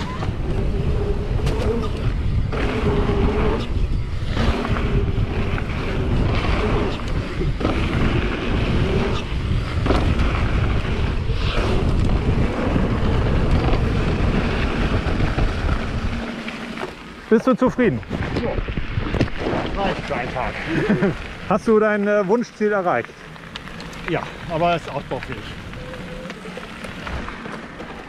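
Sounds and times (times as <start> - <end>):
wind buffeting microphone: 0.0 - 16.5, 17.8 - 21.8
faint wavering motor whine: 0.0 - 17.3
tyres rumbling on dirt trail: 0.0 - 28.0.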